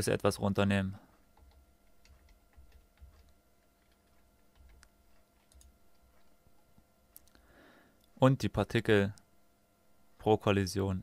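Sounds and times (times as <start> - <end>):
faint room hum: 0.0 - 11.0
mouse and keyboard clicks: 1.4 - 6.3.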